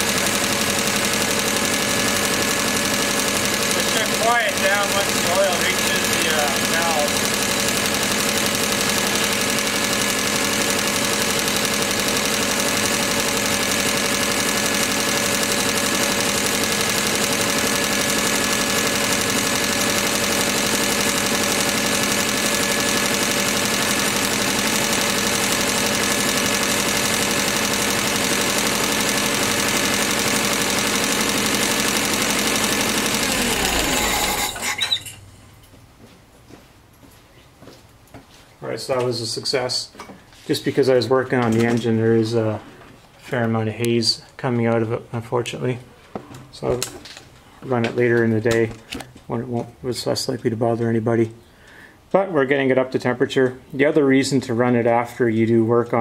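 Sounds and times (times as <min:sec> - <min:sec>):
forklift engine running: 0:00.0 - 0:35.4.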